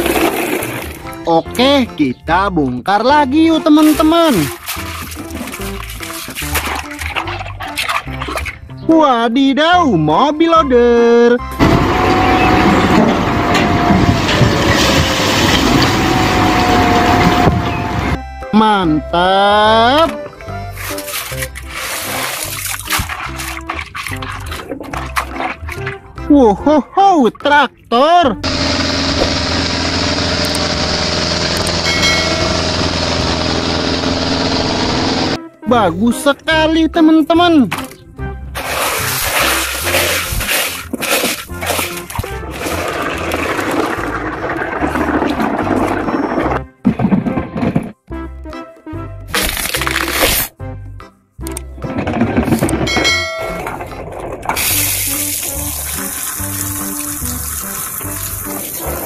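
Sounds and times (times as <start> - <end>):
background music with stepped melody: 0.1 - 14.2, 17.2 - 28.9, 35.2 - 43.6, 46.4 - 59.0
diesel tractor engines droning: 11.4 - 20.8, 28.4 - 35.4
forage harvester running: 11.5 - 18.2, 28.4 - 35.4, 38.6 - 46.6
water spray hissing: 38.6 - 40.8, 54.6 - 59.0.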